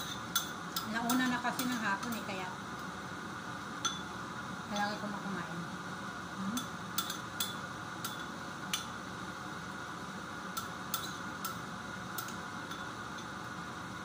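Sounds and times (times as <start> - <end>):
steady background noise: 0.0 - 14.0.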